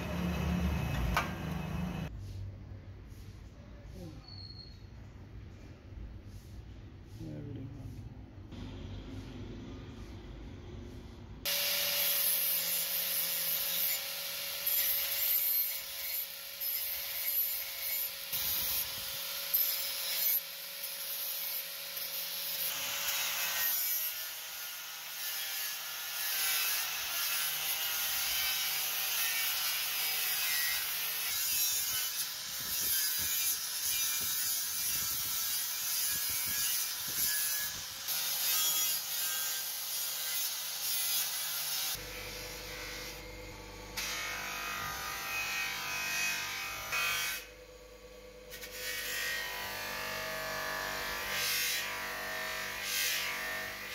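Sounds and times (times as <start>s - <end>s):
angle grinder grinding steel: 11.5s - 47.6s, 48.5s - 53.9s.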